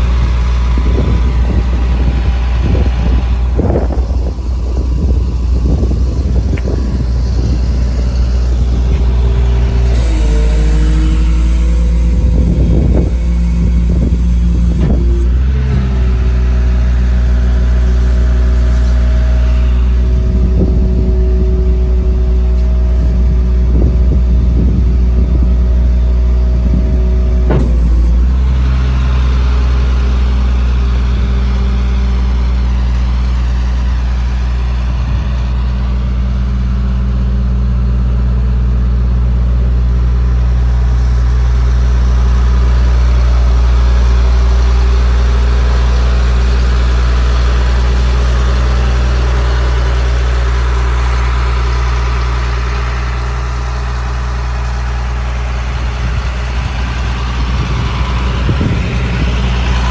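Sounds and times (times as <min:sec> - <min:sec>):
hydraulic whine: 0:00.0 - 0:59.9
truck engine running: 0:00.0 - 0:59.9
metal clunks: 0:08.9 - 0:15.8, 0:27.4 - 0:28.2.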